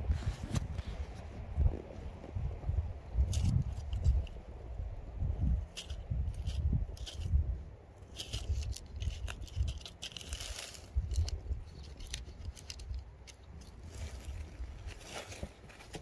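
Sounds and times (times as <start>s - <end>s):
low microphone rumble: 0.0s - 13.0s
dry leaves rustling and crackling: 8.0s - 16.0s.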